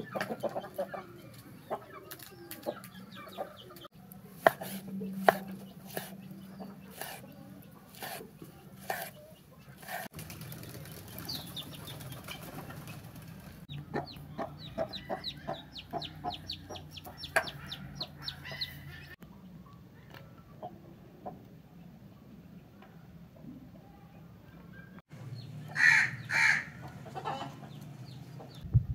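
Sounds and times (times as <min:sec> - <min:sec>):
birds chirping: 0:00.0 - 0:20.7
knife slicing on cutting board: 0:04.4 - 0:06.2, 0:07.9 - 0:08.2, 0:08.8 - 0:09.2.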